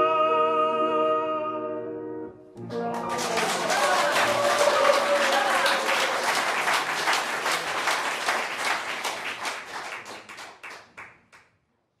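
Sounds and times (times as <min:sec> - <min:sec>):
audience applauding: 0:02.6 - 0:11.5.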